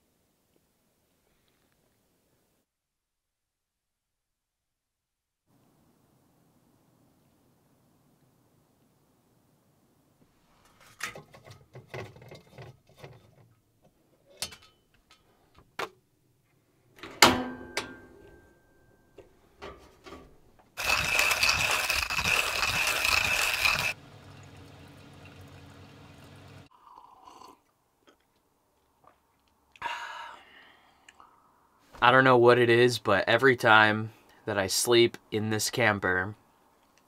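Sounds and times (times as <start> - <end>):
blinds clicking and rattling: 20.8 - 24.0.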